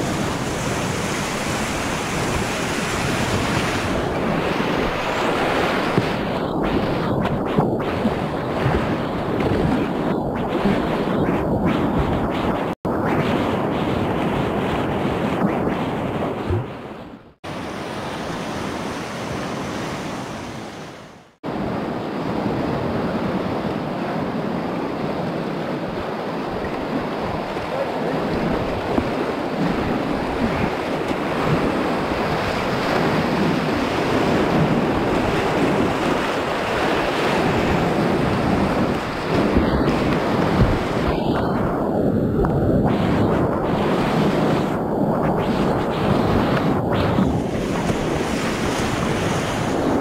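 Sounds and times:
whitewater rapids rushing: 0.0s - 6.2s, 21.9s - 41.7s.

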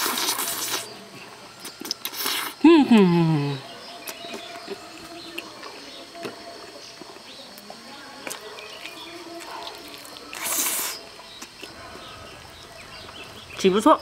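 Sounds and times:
noisy slurp: 0.0s - 1.0s, 1.6s - 2.6s, 8.3s - 12.1s
chewing and lip smacks: 1.6s - 2.6s, 4.0s - 13.2s.

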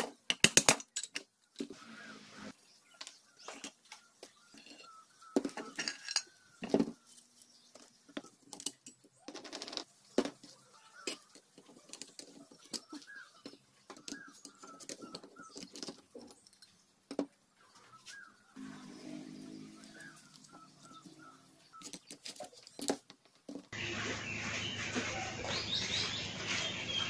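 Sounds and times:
metal engine parts clinking: 4.4s - 6.4s.

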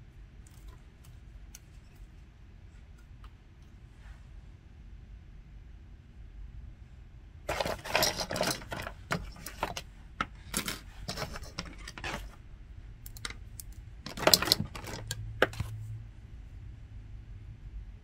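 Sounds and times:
hand tools clicking and rattling: 7.5s - 12.4s, 13.1s - 15.7s.

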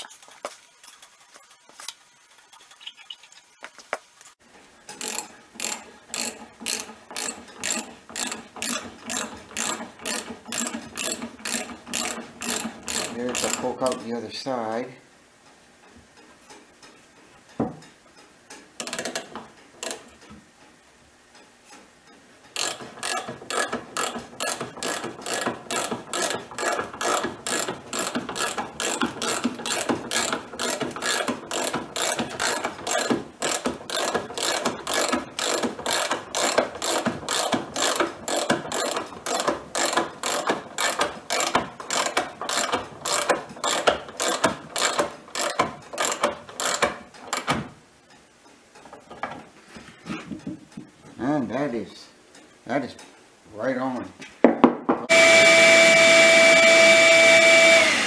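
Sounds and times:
ratchet wrench clicking: 4.9s - 14.0s, 22.5s - 46.9s.

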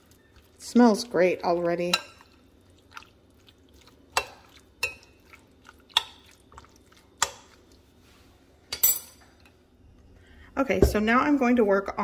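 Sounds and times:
wet squish of meat: 2.6s - 7.8s.

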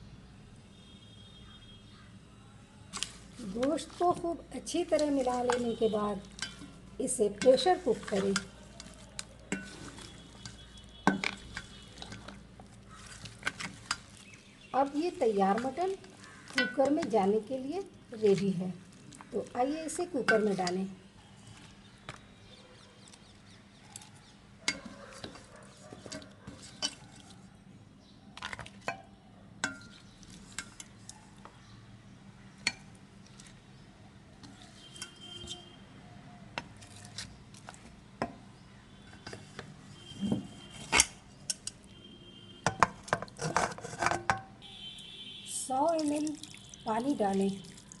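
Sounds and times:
spoon clinking and scraping metal: 4.9s - 14.3s, 16.6s - 17.1s, 24.7s - 27.3s.

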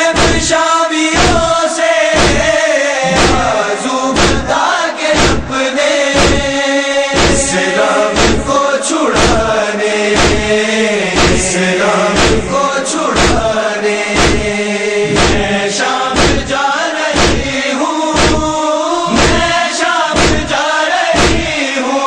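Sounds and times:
voices chanting a lament: 0.0s - 22.0s
hands beating on chests: 0.2s - 0.5s, 1.2s - 1.5s, 2.2s - 4.5s, 5.2s - 5.5s, 6.2s - 6.6s, 7.2s - 7.5s, 8.2s - 8.5s, 9.2s - 9.5s, 10.2s - 10.6s, 11.2s - 11.5s, 12.2s - 12.5s, 13.2s - 13.5s, 14.2s - 14.5s, 15.1s - 15.5s, 16.2s - 16.5s, 17.2s - 17.6s, 18.2s - 18.5s, 19.1s - 19.6s, 20.2s - 20.5s, 21.2s - 21.6s.

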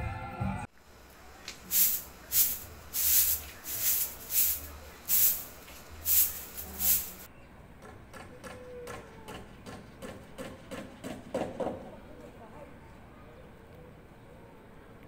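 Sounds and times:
spray bottle squirting water: 1.1s - 7.3s.

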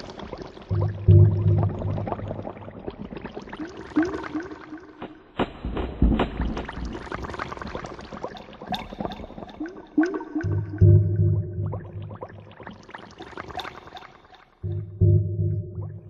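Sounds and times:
gurgling electronic blips: 0.7s - 3.2s
low rumble: 14.6s - 16.0s.

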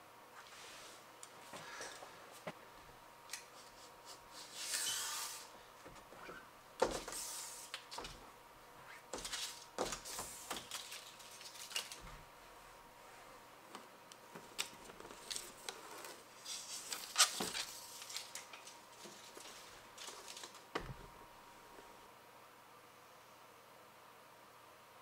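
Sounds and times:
hissy scrapes: 3.6s - 5.6s, 7.1s - 7.8s.

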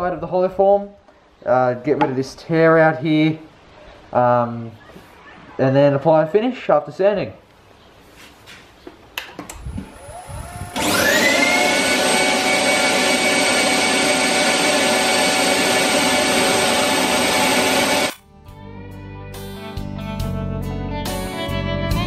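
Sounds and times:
wood lathe motor whine: 9.8s - 18.2s
guitar music: 18.1s - 22.0s.

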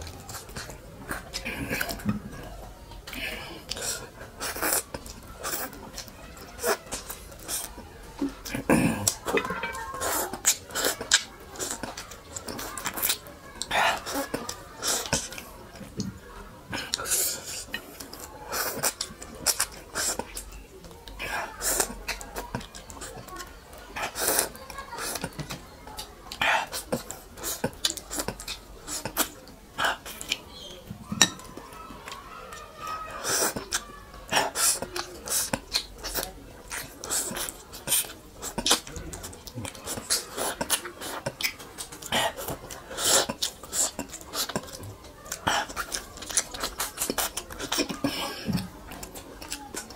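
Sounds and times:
person slurping orange: 39.7s - 44.7s.

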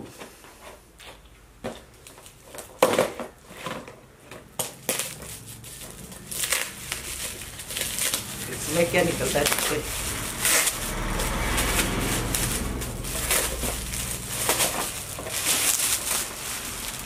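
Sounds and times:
gift wrap crinkling and tearing: 4.6s - 17.0s.

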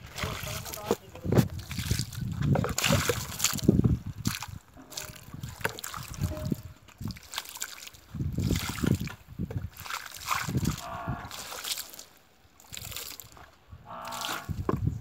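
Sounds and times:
water splashing over stones: 0.0s - 15.0s.

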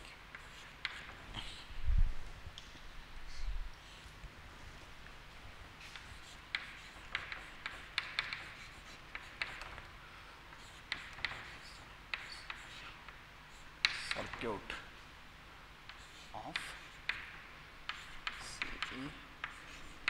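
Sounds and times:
chalk writing on a chalkboard: 0.0s - 1.7s, 5.8s - 14.9s, 15.8s - 20.0s.

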